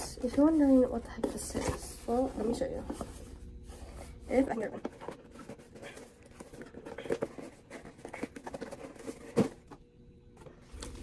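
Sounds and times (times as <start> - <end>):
cardboard box rustling: 4.3 - 9.8.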